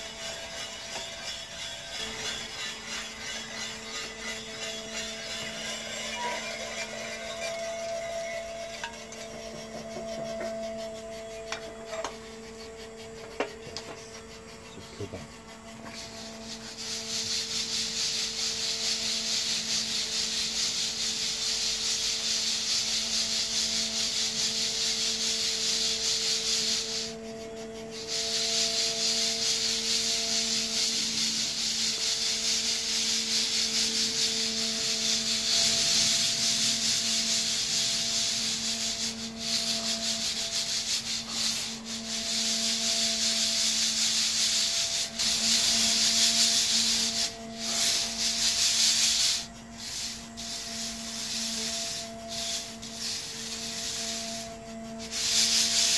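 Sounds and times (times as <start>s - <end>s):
coffee beans rattling in sieve: 0.0s - 13.7s, 14.7s - 55.9s.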